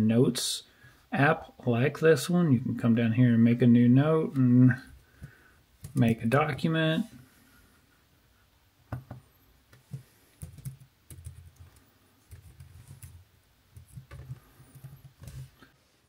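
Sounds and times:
computer keyboard typing: 0:10.4 - 0:13.2.

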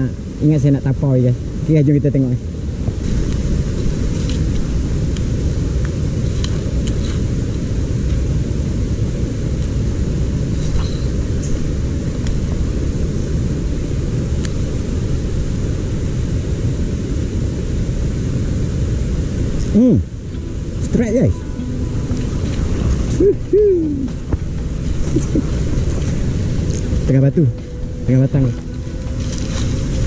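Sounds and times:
stream rapids running over rocks: 0:18.3 - 0:30.0.

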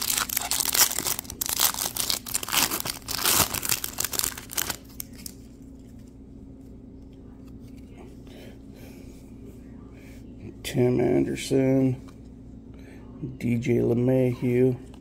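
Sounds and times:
foil wrapper tearing and crinkling: 0:00.0 - 0:05.4.

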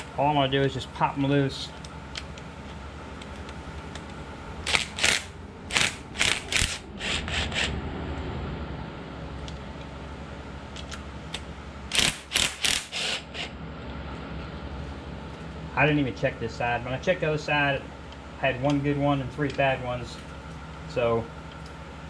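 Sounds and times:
ratchet clicking: 0:04.7 - 0:06.8, 0:11.9 - 0:13.2.

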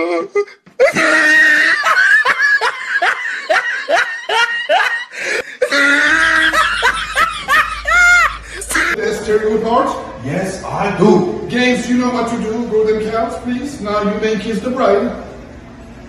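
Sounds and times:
person laughing hard: 0:00.0 - 0:09.0.

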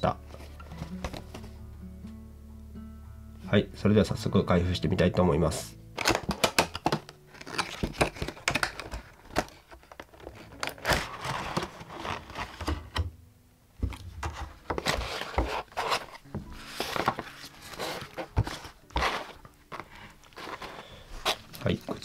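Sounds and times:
packaging crinkling and tearing: 0:06.0 - 0:13.0, 0:14.4 - 0:22.0.

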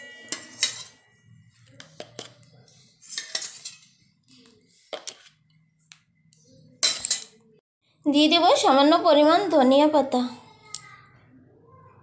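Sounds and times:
metal spoon tapping steel bowl: 0:00.0 - 0:01.0, 0:06.8 - 0:07.4.

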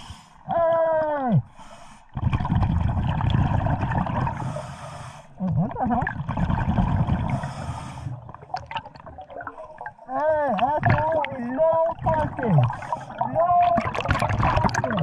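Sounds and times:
diver breathing through regulator: 0:00.0 - 0:00.4, 0:04.3 - 0:05.4, 0:07.2 - 0:08.3, 0:12.6 - 0:13.2
bubbles gurgling: 0:02.1 - 0:04.7, 0:05.4 - 0:15.0.

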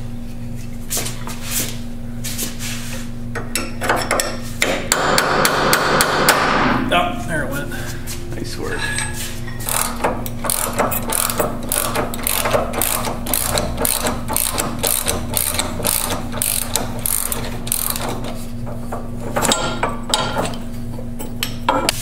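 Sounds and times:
steady low hum: 0:00.0 - 0:22.0
hand ratchet clicking: 0:09.6 - 0:18.4.

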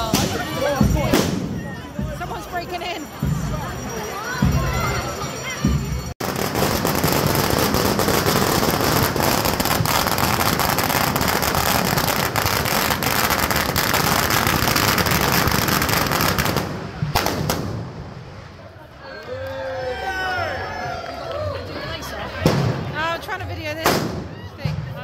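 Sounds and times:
firecrackers crackling: 0:00.0 - 0:03.1, 0:06.2 - 0:19.2, 0:22.4 - 0:24.4.

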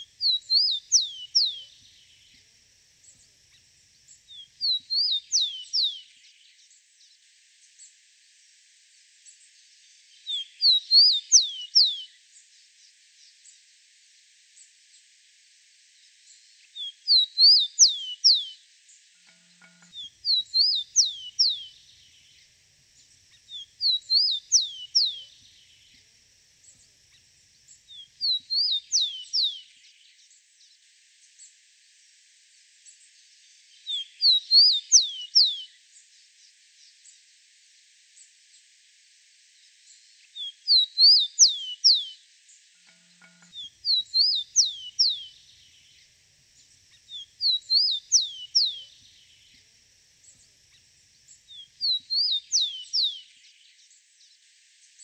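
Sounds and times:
sparrow singing whistled notes: 0:00.0 - 0:02.4, 0:04.3 - 0:06.4, 0:10.2 - 0:12.1, 0:16.8 - 0:18.6, 0:19.8 - 0:22.4, 0:23.3 - 0:26.0, 0:27.9 - 0:30.0, 0:33.8 - 0:35.7, 0:40.3 - 0:42.2, 0:43.4 - 0:46.1, 0:46.9 - 0:50.8, 0:51.5 - 0:53.6.

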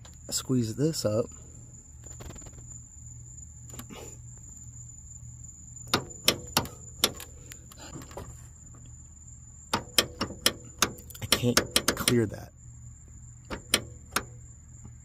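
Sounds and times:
steady low hum: 0:00.0 - 0:15.0
metal latch clicking: 0:05.9 - 0:07.3, 0:09.7 - 0:12.2, 0:13.4 - 0:14.4.

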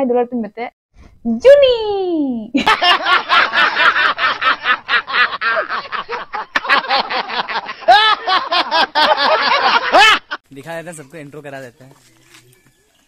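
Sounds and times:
men laughing heartily: 0:02.6 - 0:10.4.

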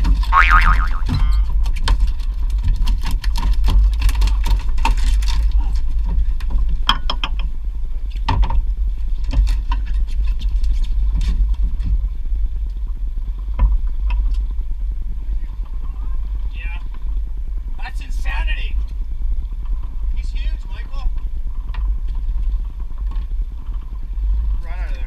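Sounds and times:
low rumble: 0:00.0 - 0:02.8
knocks and clatter on boat deck: 0:01.0 - 0:14.6.

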